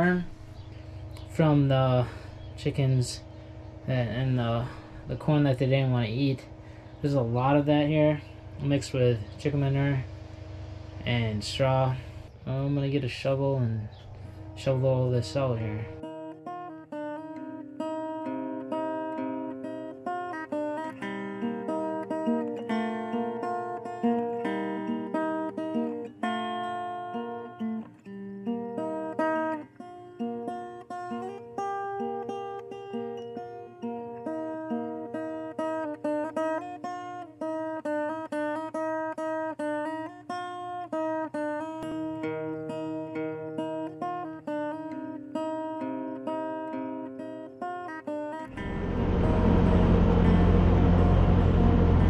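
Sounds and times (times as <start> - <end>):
plucked string melody: 16.0 - 52.0.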